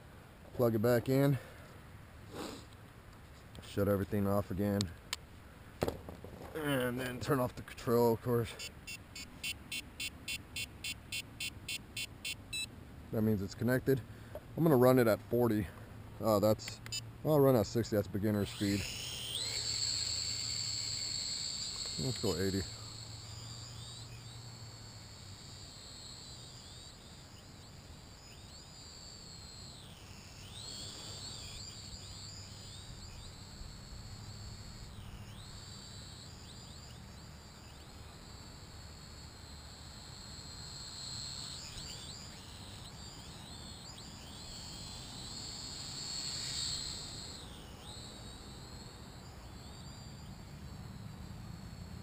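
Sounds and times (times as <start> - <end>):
drone motors whining: 16.3 - 52.0.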